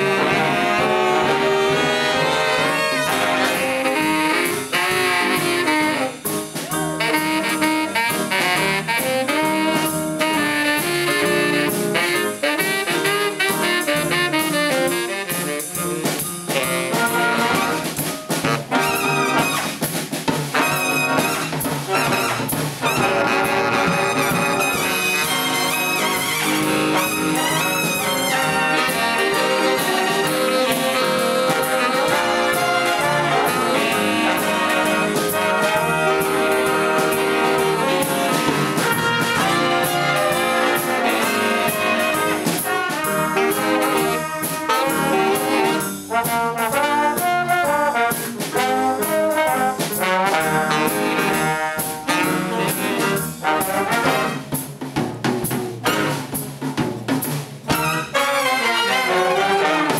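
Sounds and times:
saxophones: 0.0 - 19.8, 20.5 - 54.6, 57.7 - 59.9
brass instruments: 0.0 - 59.9
drums: 0.0 - 59.9
upright bass: 0.0 - 59.9.

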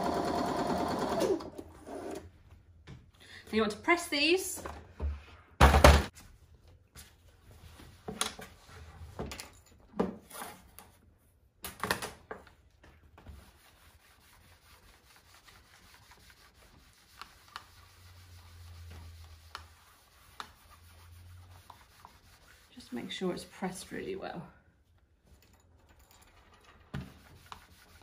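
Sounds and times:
iron rubbing over fabric: 13.3 - 24.1.

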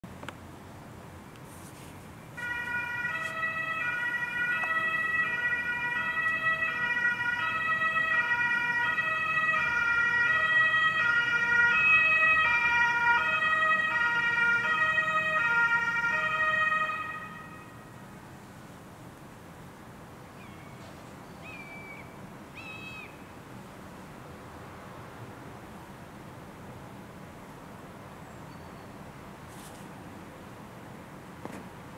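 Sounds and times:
police car two-tone siren: 2.4 - 17.9.

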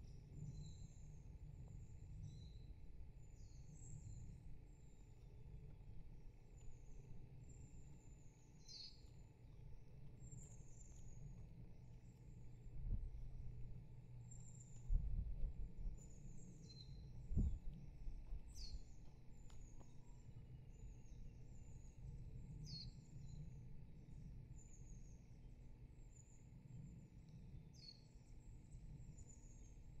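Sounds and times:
small birds chirping: 6.2 - 13.4, 14.2 - 25.4
steady low rumble: 9.3 - 24.6.

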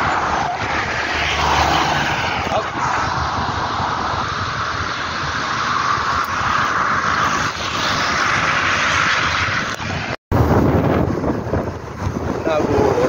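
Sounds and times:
road noise from bike tyres: 0.0 - 13.0
wind rushing: 0.0 - 13.0.

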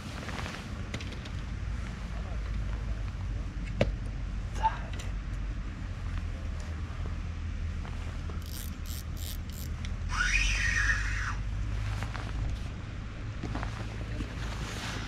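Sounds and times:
low steady rumble: 0.0 - 15.0
fishing line whizzing off reel: 8.4 - 9.7
scratchy handling sounds: 8.4 - 9.7.

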